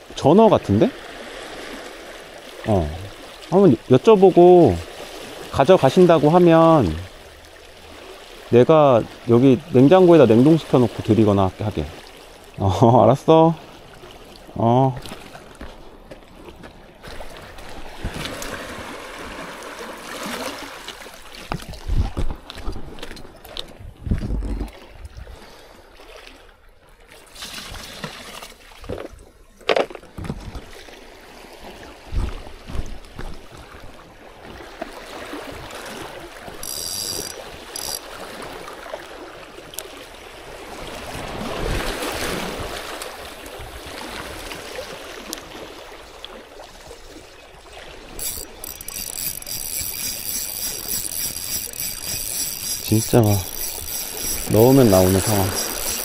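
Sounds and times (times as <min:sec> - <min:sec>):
wind on microphone: 0:21.5 - 0:23.0, 0:23.7 - 0:25.4
fishing reel clicking: 0:36.6 - 0:38.1, 0:48.2 - 0:56.0
water washing against rocks: 0:48.0 - 0:56.0
gear knocking on stones: 0:48.2 - 0:56.0.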